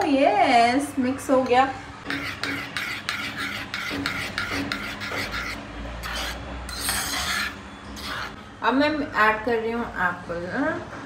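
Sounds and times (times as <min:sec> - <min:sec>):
metal spoon scraping bowl: 0:02.1 - 0:08.4.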